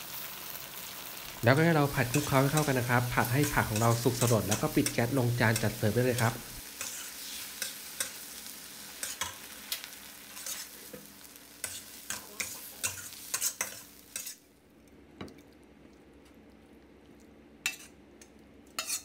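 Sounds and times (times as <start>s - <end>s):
food sizzling in a wok: 0.0s - 14.6s, 18.8s - 19.0s
metal spatula scraping a wok: 2.0s - 9.5s, 10.2s - 11.0s, 11.6s - 14.4s, 18.8s - 19.0s.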